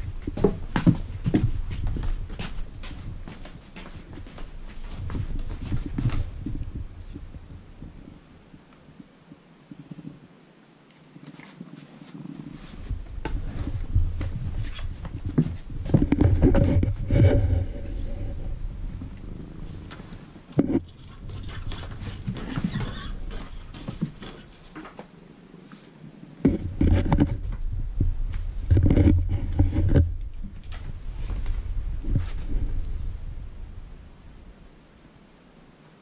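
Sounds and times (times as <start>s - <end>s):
fur scuffing on microphone: 0.0s - 7.2s, 28.3s - 33.1s
low rumble: 12.9s - 20.4s, 26.7s - 34.9s.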